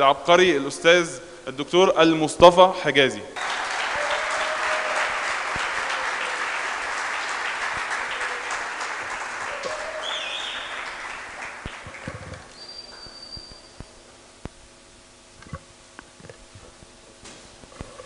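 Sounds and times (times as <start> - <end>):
audience applauding: 3.4 - 12.6.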